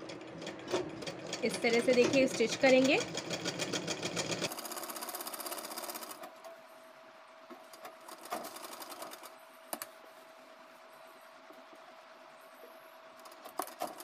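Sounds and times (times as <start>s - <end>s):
sewing machine rattling: 0.0s - 6.2s, 8.0s - 9.3s, 13.2s - 14.0s.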